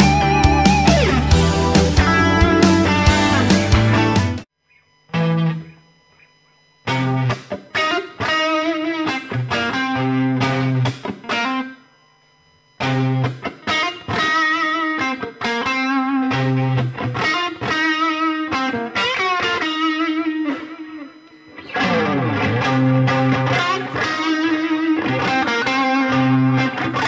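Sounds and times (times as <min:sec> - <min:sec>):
backing track: 0:00.0 - 0:04.5, 0:18.7 - 0:27.0
distorted electric guitar: 0:00.0 - 0:11.8, 0:12.8 - 0:27.0.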